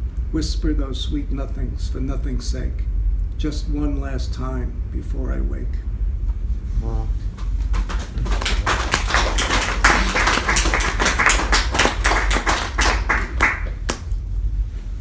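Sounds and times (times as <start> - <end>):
audience applauding: 7.6 - 14.1.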